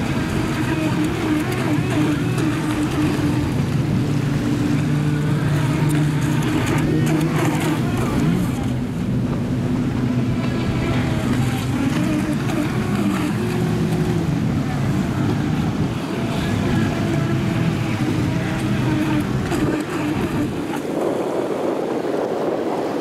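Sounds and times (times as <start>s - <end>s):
water spray rushing: 0.0s - 8.9s
electric speedboat motor drone: 0.0s - 23.0s.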